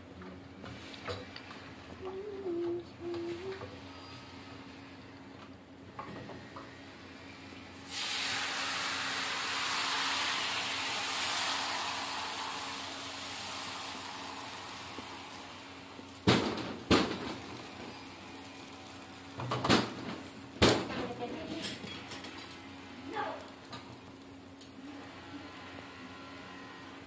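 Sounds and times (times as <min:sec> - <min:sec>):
batter sizzling in frying pan: 0:07.8 - 0:27.0.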